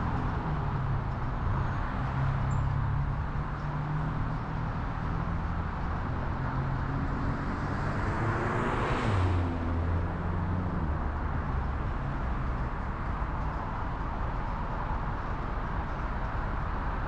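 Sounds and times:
road noise: 0.0s - 17.0s.

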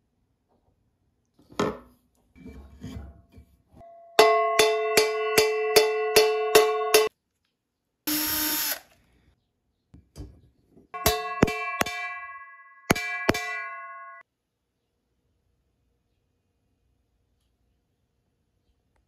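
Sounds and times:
frying pan ringing: 3.8s - 7.1s, 11.0s - 14.2s
hammer blows: 11.0s - 14.2s.

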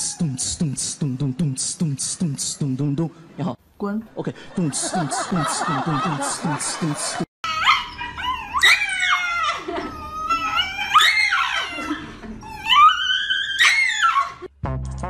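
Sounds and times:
dog howling: 7.5s - 14.5s.

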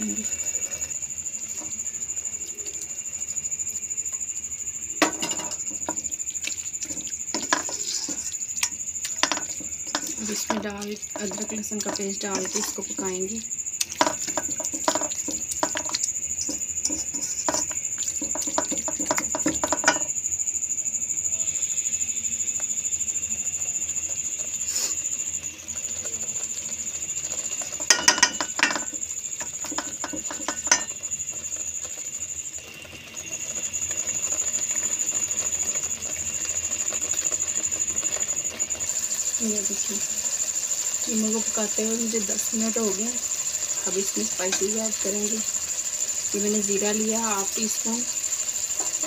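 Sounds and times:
wooden spoon scraping a pan: 5.0s - 13.2s, 14.0s - 20.1s, 24.0s - 32.2s.

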